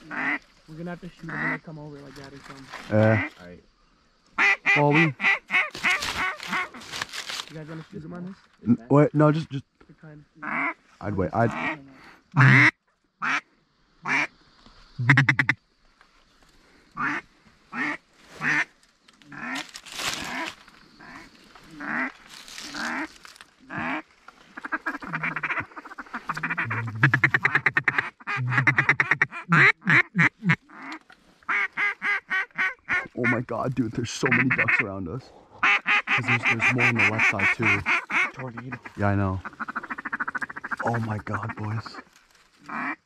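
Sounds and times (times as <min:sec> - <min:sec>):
duck quacking: 0:00.0 - 0:00.4, 0:04.4 - 0:06.8, 0:11.4 - 0:11.8, 0:12.4 - 0:13.4, 0:15.0 - 0:15.6, 0:21.0 - 0:22.1, 0:23.7 - 0:24.0, 0:24.6 - 0:33.6, 0:34.2 - 0:34.9, 0:35.6 - 0:42.0, 0:42.7 - 0:43.0.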